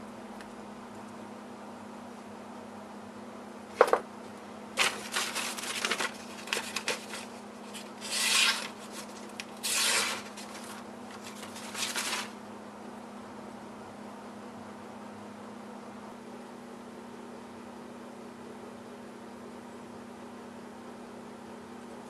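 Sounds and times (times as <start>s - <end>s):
knife slicing paper: 4.8s - 12.4s
paper rustling: 4.8s - 12.4s.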